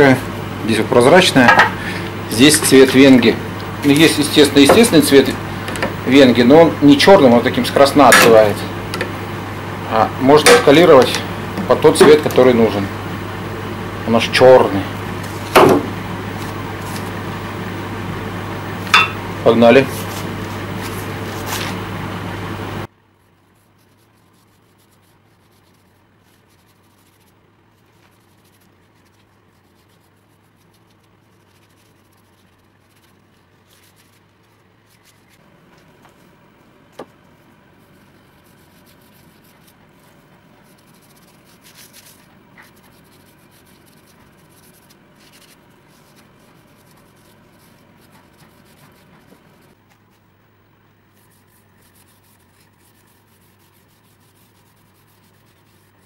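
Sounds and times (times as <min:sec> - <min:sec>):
loud steady noise with low hum: 0:00.0 - 0:23.1
bristle brush rubbing on wood: 0:16.1 - 0:17.4, 0:19.4 - 0:21.9, 0:23.2 - 0:36.4, 0:37.0 - 0:50.3, 0:51.1 - 0:56.0.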